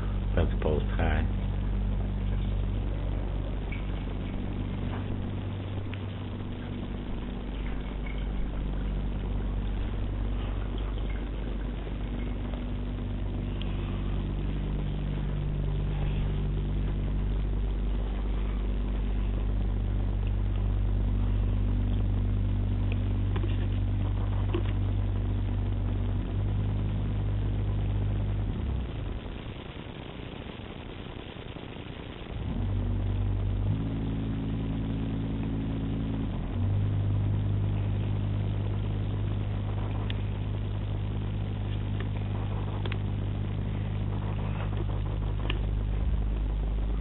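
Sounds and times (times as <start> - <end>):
truck engine humming through walls: 0.0 - 29.3.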